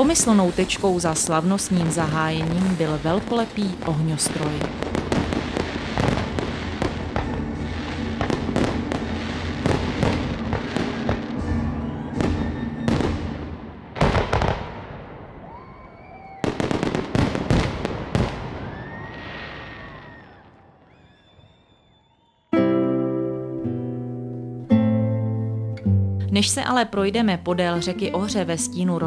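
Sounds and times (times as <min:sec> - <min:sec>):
fireworks whistling: 0:00.0 - 0:14.6, 0:15.4 - 0:22.5
fireworks bursting and crackling: 0:00.0 - 0:22.0.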